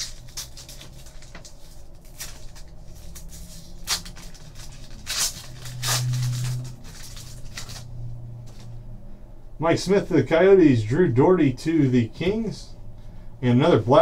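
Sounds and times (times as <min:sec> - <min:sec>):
foil wrapper crinkling and tearing: 0:00.0 - 0:07.9
low hum: 0:00.0 - 0:14.0.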